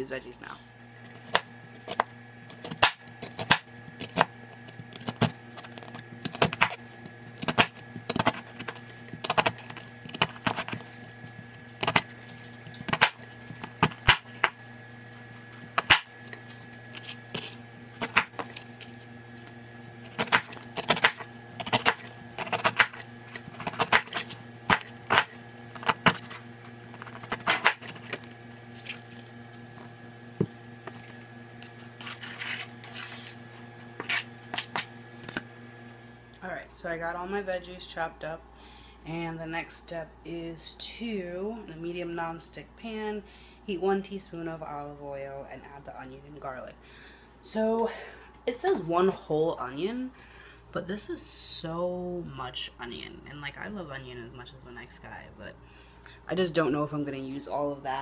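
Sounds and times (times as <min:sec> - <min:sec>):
faint steady hum: 0:00.0 - 0:58.0
knife chopping on cutting board: 0:01.2 - 0:06.8, 0:15.8 - 0:18.6, 0:20.1 - 0:26.4.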